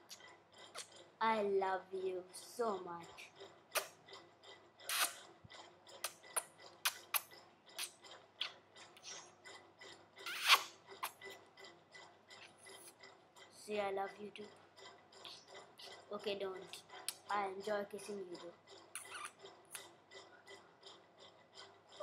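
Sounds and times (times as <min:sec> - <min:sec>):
lip smacks kissing: 0:04.9 - 0:05.2, 0:06.4 - 0:08.6, 0:10.3 - 0:11.2, 0:19.0 - 0:19.8.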